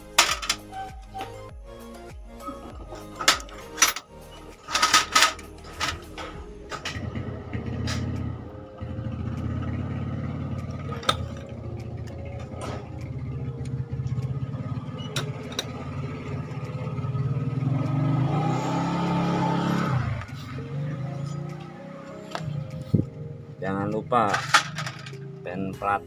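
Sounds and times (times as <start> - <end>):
metal clicks of engine parts: 0.0 - 0.8, 2.9 - 7.1, 10.9 - 13.8, 15.0 - 15.8, 23.9 - 25.4
engine running steadily: 4.7 - 23.6.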